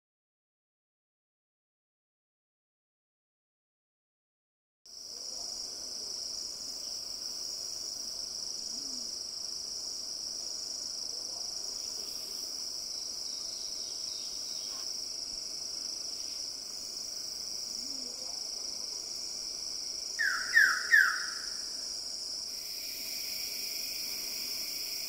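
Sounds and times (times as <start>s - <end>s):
high insect drone: 4.9s - 25.0s
short falling bird calls: 20.2s - 21.5s.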